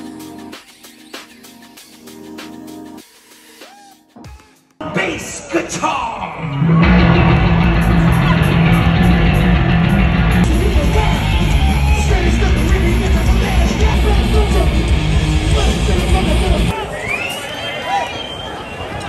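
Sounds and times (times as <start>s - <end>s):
heavy metal music: 4.3s - 16.8s.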